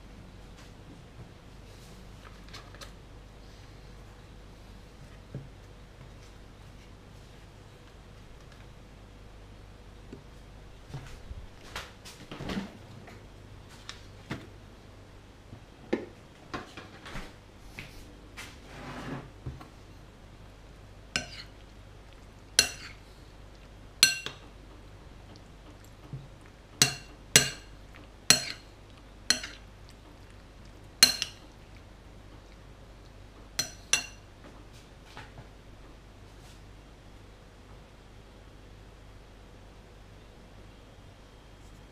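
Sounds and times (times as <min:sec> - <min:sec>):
metal spoon clinking on a plate: 0:21.2 - 0:21.5, 0:22.6 - 0:23.0, 0:24.0 - 0:24.4, 0:26.8 - 0:27.7, 0:28.3 - 0:28.6, 0:29.3 - 0:29.6, 0:31.0 - 0:31.4, 0:33.6 - 0:34.2.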